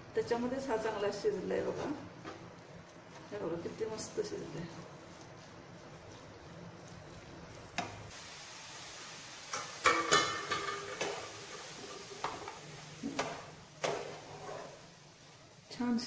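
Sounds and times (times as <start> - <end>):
faint sizzle from pan: 0.0 - 16.0
wooden spatula scraping pan: 1.5 - 8.1, 9.9 - 15.3.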